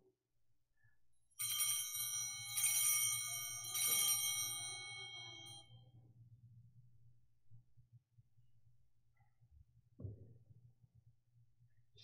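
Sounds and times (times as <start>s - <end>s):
altar bells ringing: 1.4s - 5.7s.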